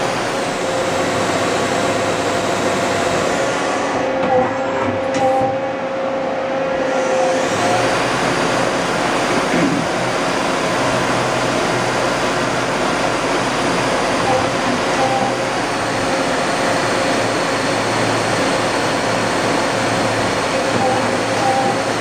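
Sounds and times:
lathe spindle whine and hiss: 0:06.7 - 0:22.0.

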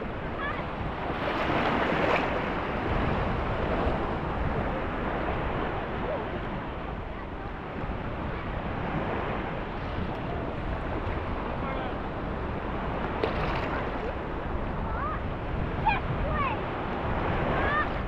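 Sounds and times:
small waves lapping: 0:00.0 - 0:18.0
wind rumbling on microphone: 0:00.0 - 0:18.0.

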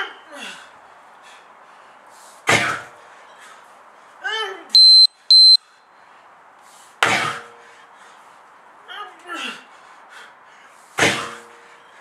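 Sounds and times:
sledgehammer slamming onto tyre: 0:02.5 - 0:02.9, 0:07.0 - 0:07.5, 0:11.0 - 0:11.5
high-pitched electronic beeps: 0:04.8 - 0:05.6.

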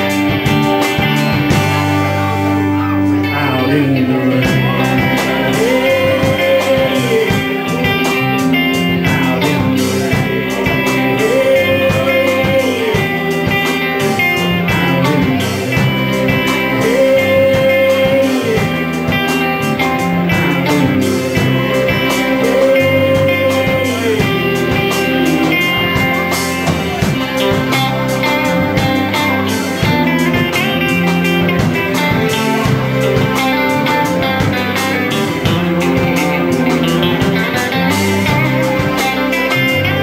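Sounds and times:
live rock band playing: 0:00.0 - 0:40.0.

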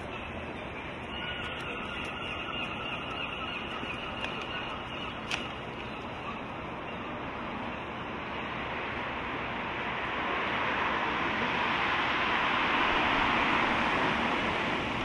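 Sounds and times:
distant traffic rumble: 0:00.0 - 0:15.0.

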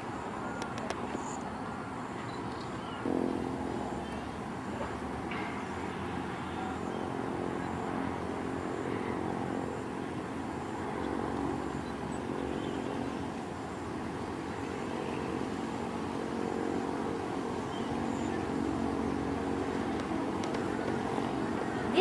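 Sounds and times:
distant motor engines droning: 0:00.0 - 0:22.0
noisy background: 0:00.0 - 0:22.0.

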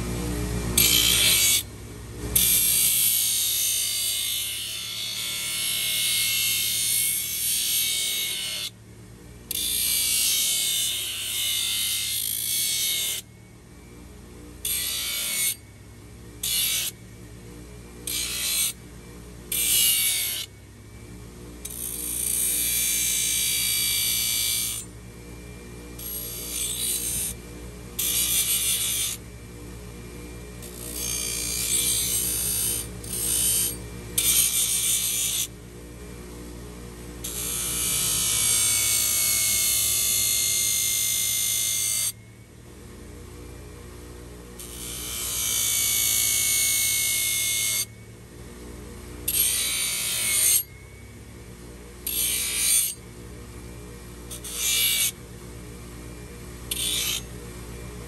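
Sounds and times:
grinder motor hum: 0:00.0 - 0:58.0
metal grinding on belt grinder: 0:00.8 - 0:01.7, 0:02.4 - 0:08.7, 0:09.5 - 0:13.3, 0:14.6 - 0:15.6, 0:16.4 - 0:17.0, 0:18.0 - 0:18.8, 0:19.5 - 0:20.5, 0:21.6 - 0:24.9, 0:26.0 - 0:27.4, 0:28.0 - 0:29.2, 0:30.6 - 0:35.5, 0:37.2 - 0:42.2, 0:44.6 - 0:47.9, 0:49.2 - 0:50.8, 0:52.0 - 0:53.1, 0:54.2 - 0:55.3, 0:56.7 - 0:57.4.

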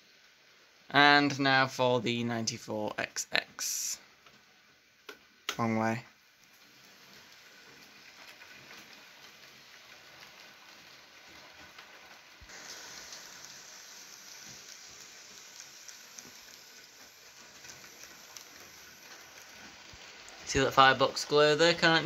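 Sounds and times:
model train wheels rolling on rail: 0:00.0 - 0:22.0.

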